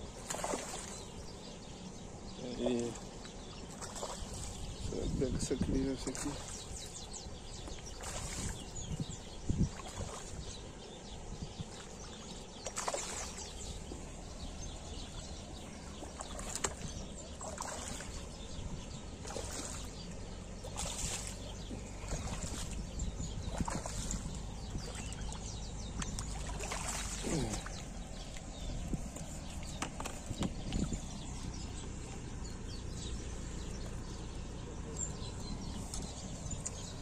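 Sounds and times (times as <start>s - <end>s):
fish splashing at water surface: 0.1s - 1.0s, 7.9s - 8.6s, 12.6s - 13.6s, 16.0s - 18.3s, 19.2s - 20.0s, 20.6s - 22.8s, 23.5s - 25.4s, 26.0s - 28.5s.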